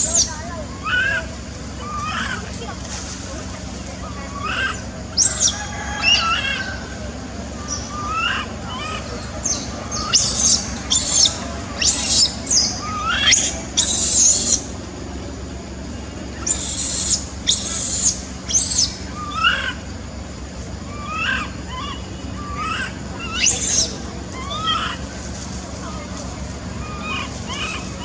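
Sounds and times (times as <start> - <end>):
infant monkey screaming: 0.0 - 2.6, 4.0 - 14.8, 16.4 - 20.0, 20.8 - 25.4, 26.6 - 28.0.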